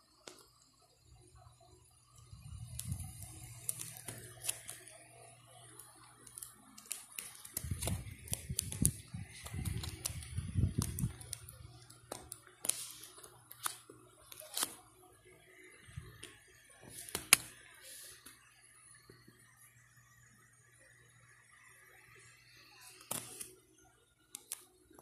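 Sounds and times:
plastic pockets clicking and crinkling: 6.2s - 11.5s.

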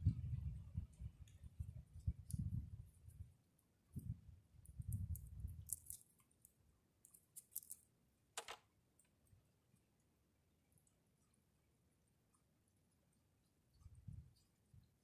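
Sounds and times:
light clicks and crackles: 3.9s - 10.1s.

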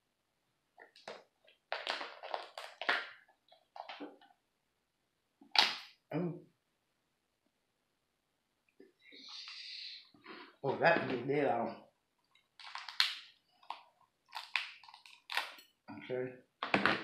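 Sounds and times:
lobster shell cracking: 12.6s - 15.7s.

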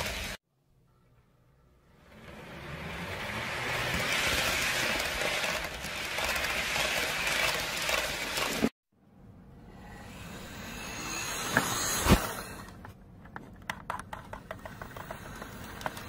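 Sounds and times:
model train rolling on track: 2.0s - 8.7s, 14.4s - 16.0s.

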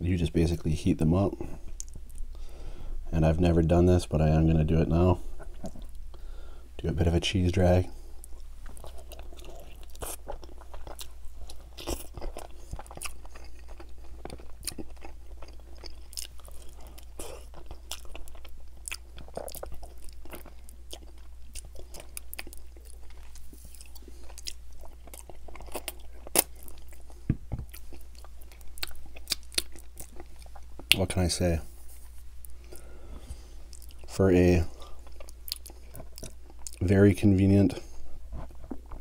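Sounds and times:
close chewing and biting: 8.2s - 31.1s, 32.1s - 36.9s, 38.1s - 39.0s.

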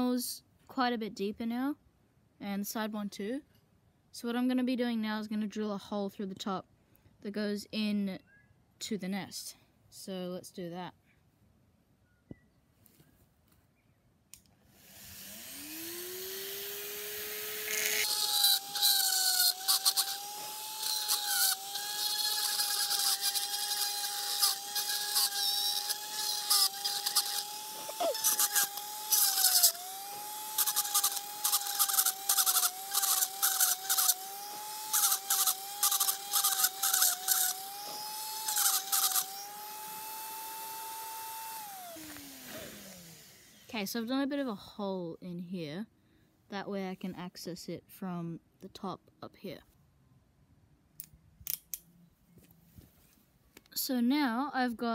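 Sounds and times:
power drill whining: 14.7s - 43.8s
drill bit grinding into block: 14.8s - 43.8s.

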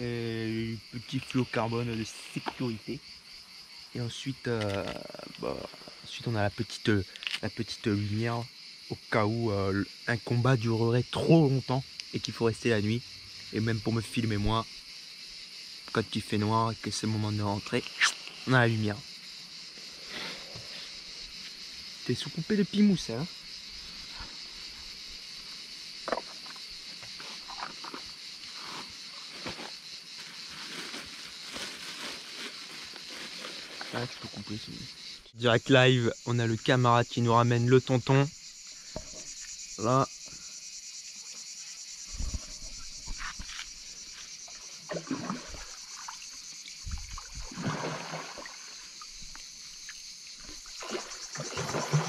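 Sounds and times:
crickets chirring: 0.0s - 52.0s
water splashing: 44.9s - 49.1s, 50.4s - 52.0s.

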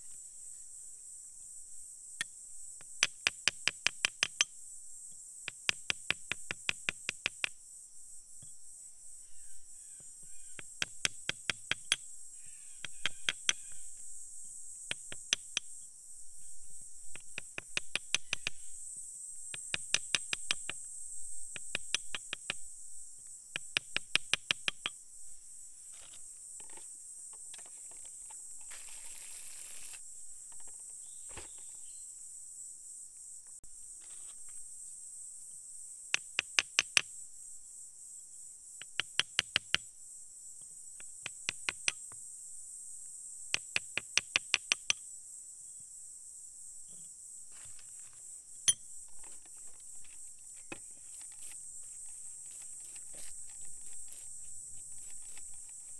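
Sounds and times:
insects chirring: 0.0s - 55.9s
metal tool tapping stone: 3.0s - 4.5s, 10.6s - 12.0s, 12.8s - 13.8s, 17.2s - 18.6s, 43.5s - 45.0s, 48.6s - 48.8s.

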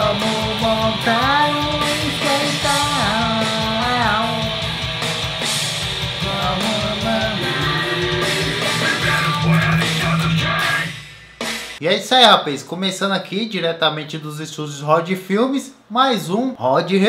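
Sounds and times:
man singing: 0.0s - 4.8s, 6.2s - 11.0s
rock electric guitar: 0.0s - 11.8s.

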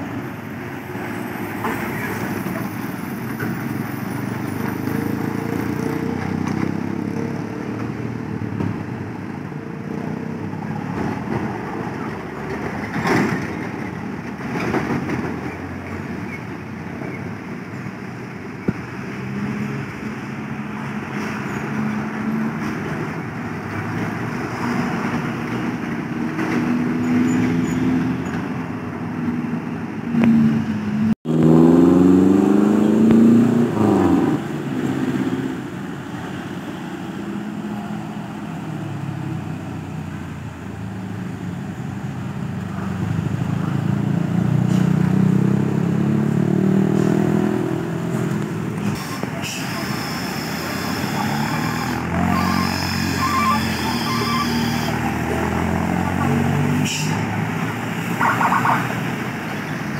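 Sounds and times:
vehicle engines pulling uphill: 0.0s - 59.9s
engine revving hard: 31.3s - 35.5s, 49.0s - 57.6s.

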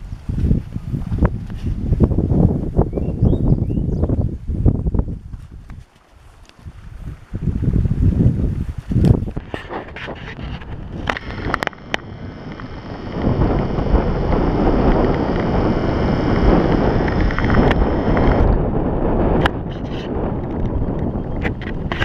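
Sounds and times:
wind buffeting microphone: 0.0s - 22.0s
sharp clicks: 10.4s - 18.6s.

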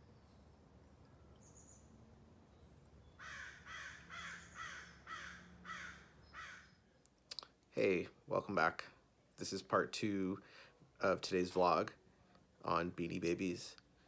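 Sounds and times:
bird calling: 1.2s - 6.9s.

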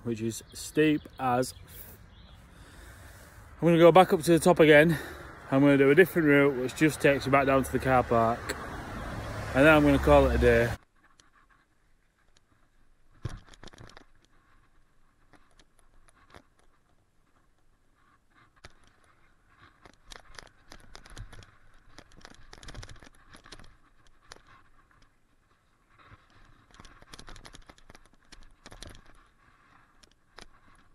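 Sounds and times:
tyres crunching on gravel: 0.0s - 10.8s.

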